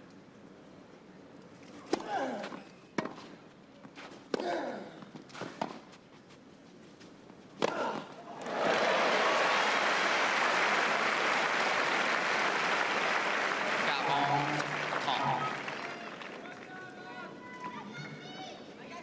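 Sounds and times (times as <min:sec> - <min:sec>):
crowd applause: 0:08.4 - 0:17.0.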